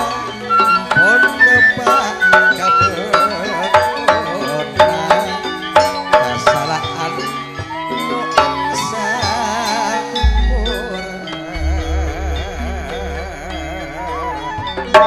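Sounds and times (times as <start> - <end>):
ringing metallophone notes: 0.0 - 15.0
hand drum strokes: 10.2 - 15.0.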